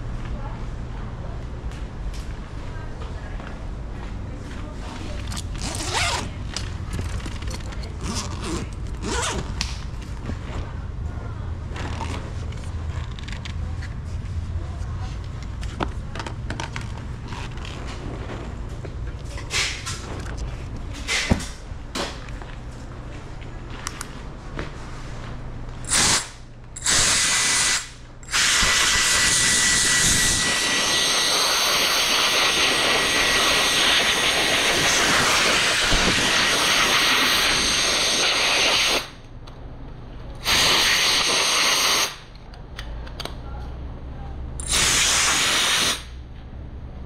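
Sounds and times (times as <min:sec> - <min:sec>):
pressurized air hissing: 0:25.9 - 0:39.2, 0:40.4 - 0:42.3, 0:44.6 - 0:46.2.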